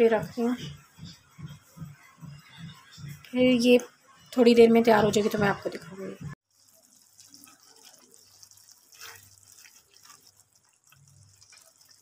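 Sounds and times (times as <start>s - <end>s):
curry bubbling and popping in pan: 6.4s - 12.0s.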